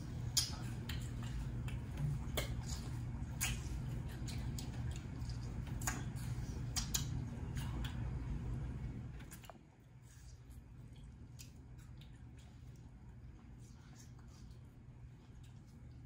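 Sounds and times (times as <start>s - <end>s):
crisp mouth clicks and smacks: 0.2s - 8.2s, 10.5s - 12.9s.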